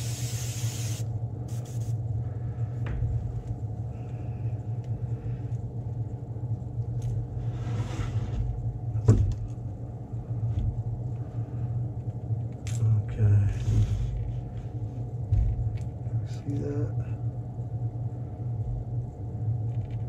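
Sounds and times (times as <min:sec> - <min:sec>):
faint hiss: 0:00.0 - 0:01.9
air filter fan humming: 0:00.0 - 0:20.0.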